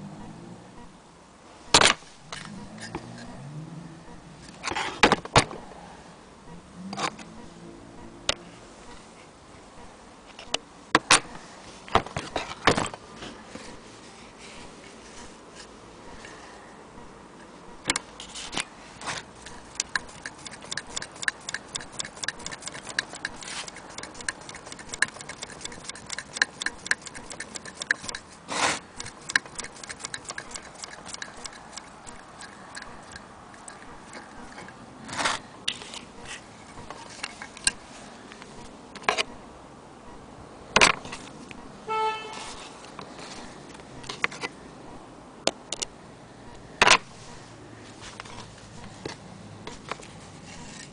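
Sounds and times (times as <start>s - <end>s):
sewing machine clicking: 19.4s - 34.7s.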